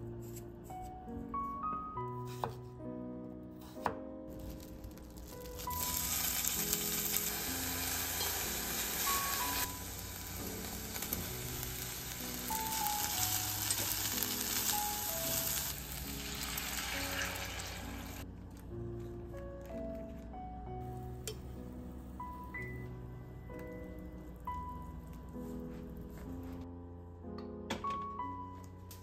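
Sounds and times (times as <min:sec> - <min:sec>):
soft background music: 0:00.0 - 0:29.0
meat sizzling in hot oil: 0:05.2 - 0:18.2.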